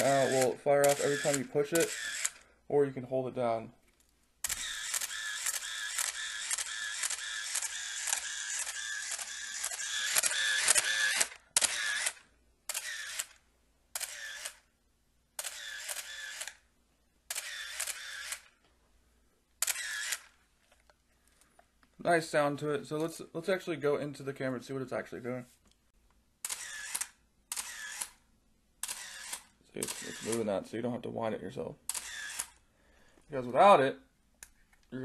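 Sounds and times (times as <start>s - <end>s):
camera shutter release: 0.0s - 2.4s, 4.4s - 14.7s, 15.4s - 16.6s, 17.3s - 18.6s, 19.6s - 20.4s, 26.4s - 28.2s, 28.8s - 30.5s, 31.9s - 32.6s
camera winder motor advancing film: 0.0s - 2.4s, 4.4s - 13.4s, 14.0s - 14.7s, 15.4s - 16.6s, 17.3s - 18.5s, 19.6s - 20.4s, 26.4s - 28.2s, 28.8s - 30.4s, 31.9s - 32.6s.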